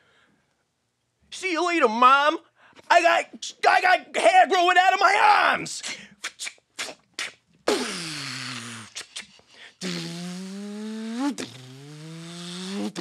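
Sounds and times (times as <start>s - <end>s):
man beatboxing car sounds: 5.8s - 13.0s.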